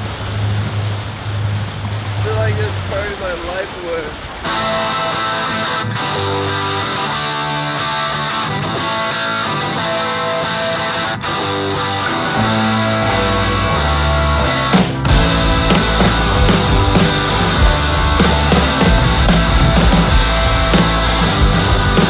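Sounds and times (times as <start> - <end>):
rock music with guitar: 4.5 - 22.0.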